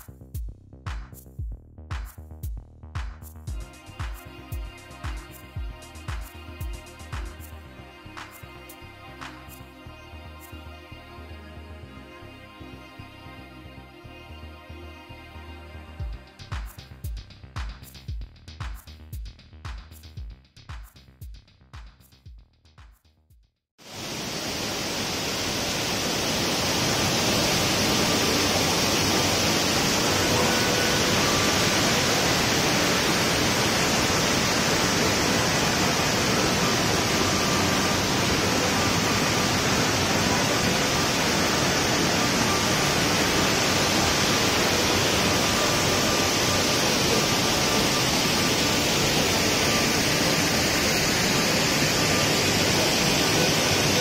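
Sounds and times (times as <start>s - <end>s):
waterfall rushing: 23.8s - 54.0s.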